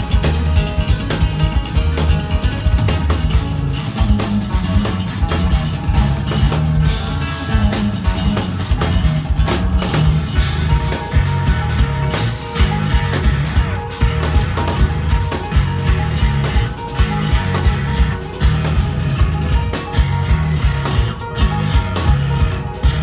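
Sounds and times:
drum kit hits: 0:00.0 - 0:23.0
electric guitars: 0:00.0 - 0:23.0
progressive metal band playing: 0:00.0 - 0:23.0.

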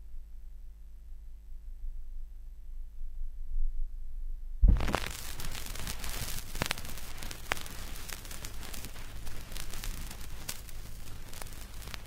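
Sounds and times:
low mains hum: 0:00.0 - 0:12.0
stylus landing thump: 0:04.6 - 0:05.0
vinyl pops: 0:04.6 - 0:12.0
vinyl surface hiss and crackle: 0:04.6 - 0:12.0.

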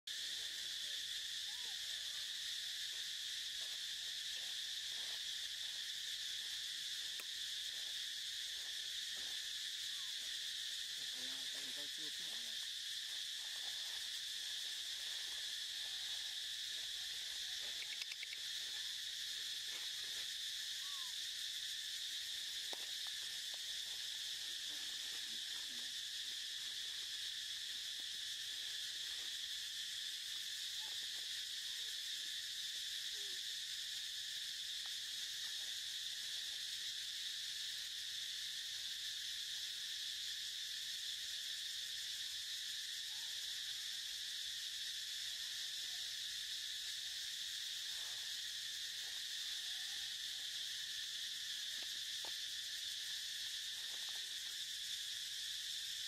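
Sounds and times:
insects buzzing: 0:00.1 - 0:56.0
faint short insect chirps: 0:13.8 - 0:23.2.

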